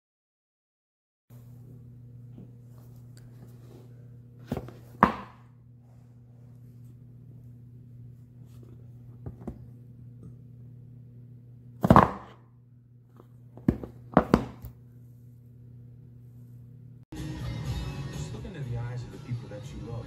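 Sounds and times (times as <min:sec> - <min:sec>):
steady low hum: 0:01.3 - 0:17.1
box knocking on countertop: 0:04.5 - 0:05.4, 0:11.8 - 0:12.4, 0:13.6 - 0:14.7.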